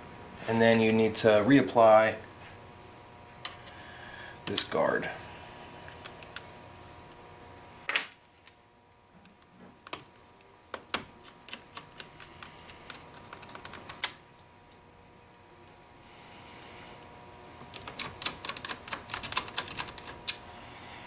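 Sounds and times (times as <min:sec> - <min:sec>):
sharp clicks of laptop parts: 0:10.7 - 0:14.2.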